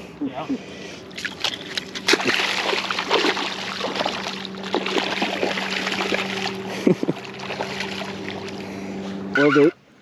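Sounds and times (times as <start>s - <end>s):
steady low hum: 0.0s - 10.0s
water splashing and sloshing: 1.0s - 8.9s.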